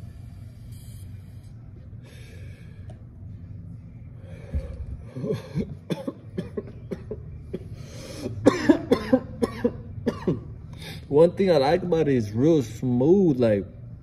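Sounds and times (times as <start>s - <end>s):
man coughing: 5.2s - 10.6s.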